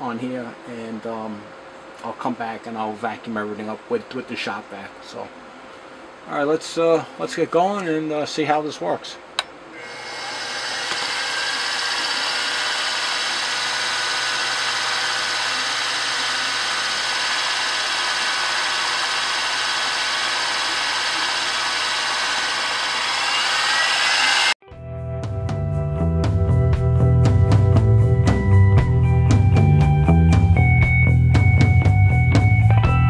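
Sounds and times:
cutoff wheel whining: 9.4 - 24.6.

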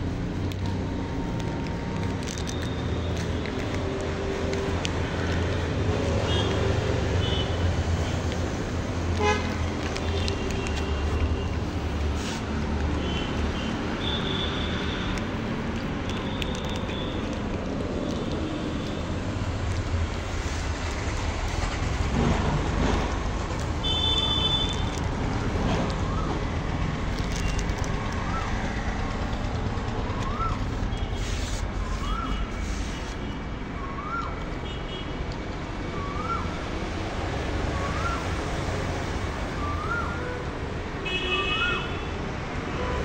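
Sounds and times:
street traffic rumble: 0.0 - 43.0.

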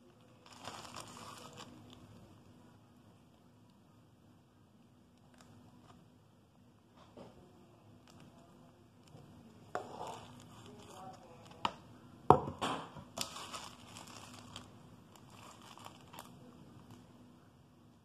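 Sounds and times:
plastic bag crinkling: 0.1 - 2.3, 5.2 - 6.0, 8.0 - 11.8, 13.1 - 17.1
items knocking on countertop: 11.6 - 13.1.

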